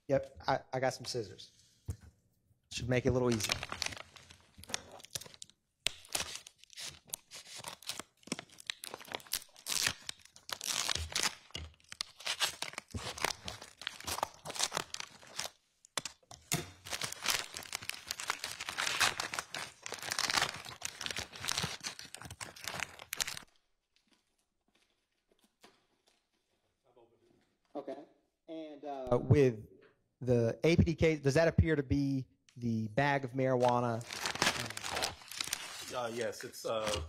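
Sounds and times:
plastic bag crinkling and tearing: 3.3s - 16.2s, 16.8s - 23.5s, 33.6s - 37.0s
scissors cutting plastic: 4.6s - 23.4s.

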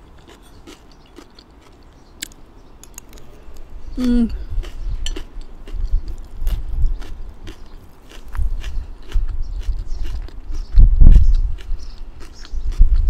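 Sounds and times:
chewing: 0.0s - 3.3s, 4.3s - 13.0s
person humming: 3.3s - 4.6s.

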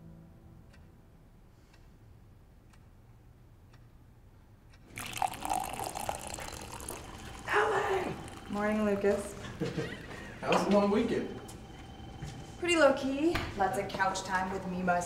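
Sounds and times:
running water filling vessel: 4.9s - 9.7s.

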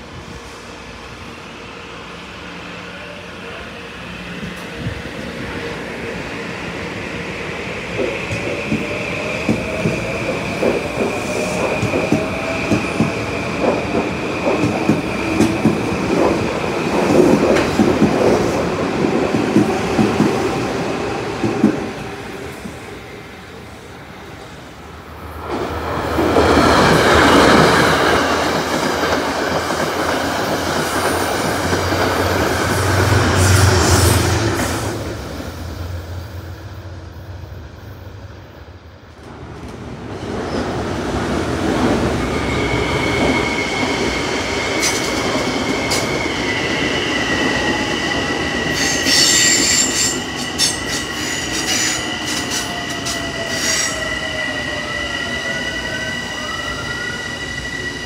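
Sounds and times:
electric train rumbling past: 0.0s - 58.0s
train wheels squealing: 42.1s - 58.0s.

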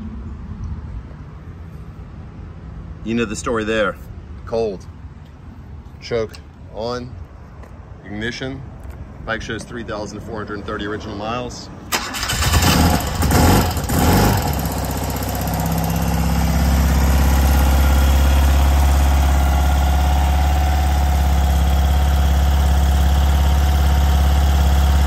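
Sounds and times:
motorcycle engine idling: 13.0s - 25.0s.

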